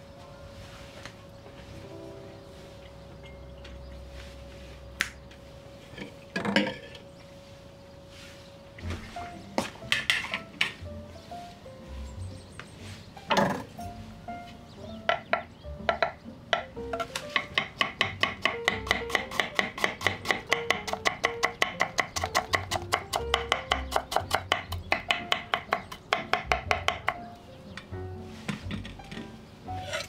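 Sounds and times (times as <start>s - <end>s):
light background music: 0.0s - 30.0s
knife chopping on wooden board: 15.1s - 27.3s.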